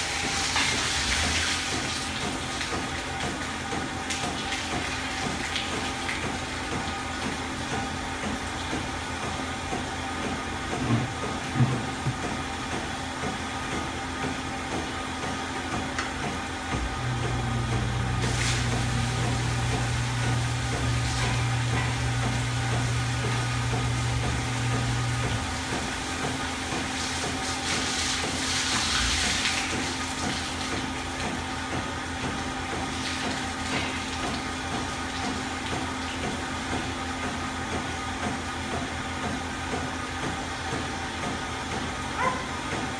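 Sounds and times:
milking machinery hum: 0.0s - 42.9s
deeper machine hum: 5.8s - 27.4s.

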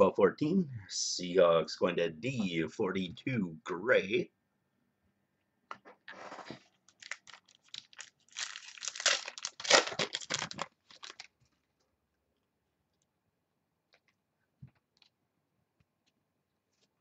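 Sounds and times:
foil wrapper crinkling and tearing: 6.8s - 11.4s.

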